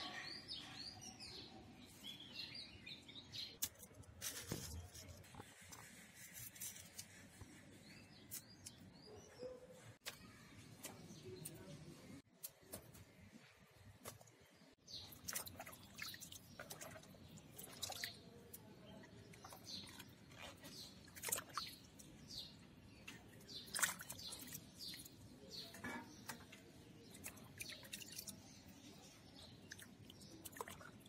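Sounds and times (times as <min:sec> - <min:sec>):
water dripping and splashing: 0:15.0 - 0:22.3, 0:23.0 - 0:25.2, 0:26.2 - 0:28.6, 0:29.4 - 0:31.0.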